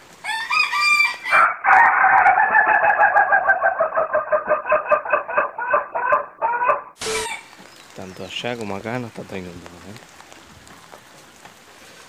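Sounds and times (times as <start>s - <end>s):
rooster crowing: 0.2s - 7.5s.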